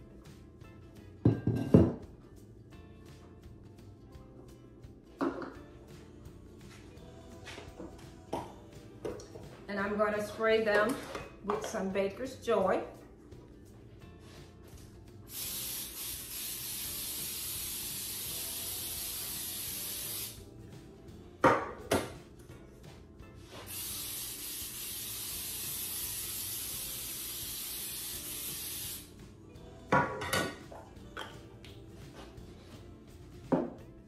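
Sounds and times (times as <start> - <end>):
aerosol spray hissing: 15.3 - 20.4, 23.6 - 29.2.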